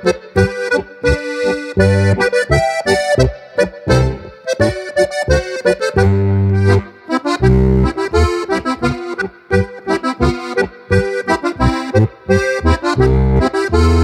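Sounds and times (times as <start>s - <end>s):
button accordion playing: 0.0s - 14.0s.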